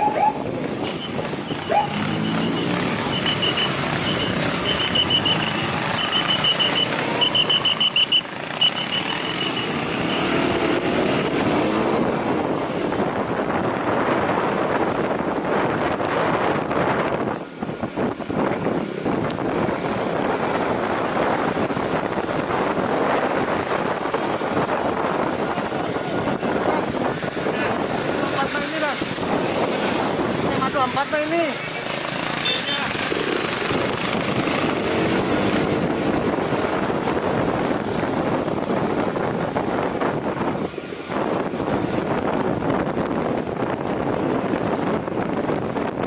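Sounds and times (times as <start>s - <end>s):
motorcycle engine and road noise: 0.0s - 46.0s
rapid high-pitched beeps: 1.5s - 9.6s.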